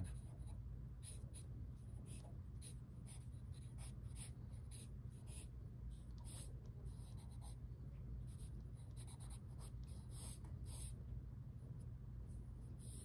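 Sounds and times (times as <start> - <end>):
pencil scratching on paper: 0.0 - 7.6, 8.3 - 11.0
steady low hum: 0.0 - 13.0.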